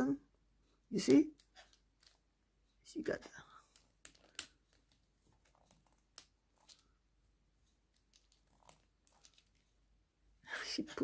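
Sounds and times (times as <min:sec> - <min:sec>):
faint clicks handling plastic doll: 0:00.6 - 0:02.4, 0:03.1 - 0:07.0, 0:07.6 - 0:09.8.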